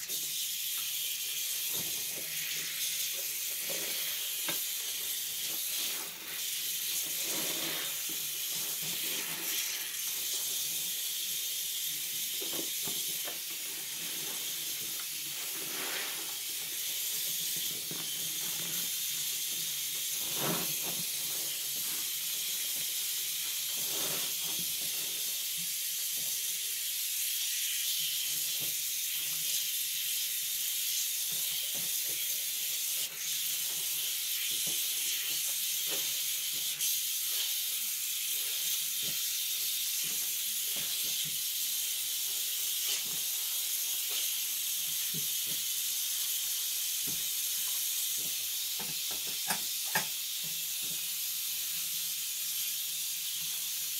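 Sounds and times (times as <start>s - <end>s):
high-pitched hiss: 0.0s - 25.6s.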